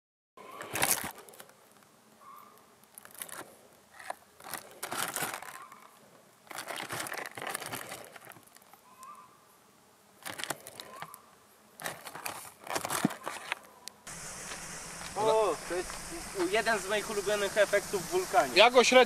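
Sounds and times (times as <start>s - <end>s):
plastic wrap crinkling: 0.6s - 1.5s, 2.8s - 8.8s, 10.2s - 11.2s, 11.8s - 13.7s.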